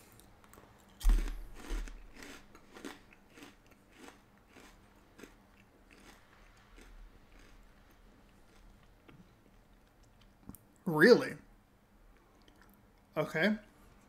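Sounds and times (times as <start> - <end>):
crunchy snack chewing: 0.1 - 10.3.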